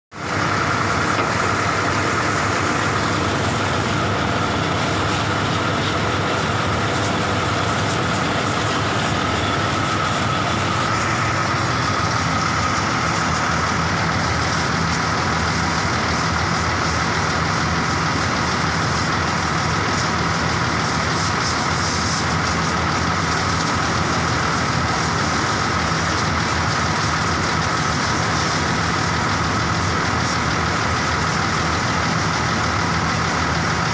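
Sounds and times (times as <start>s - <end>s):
motor humming: 0.2s - 15.1s
water spraying hiss: 0.3s - 33.9s.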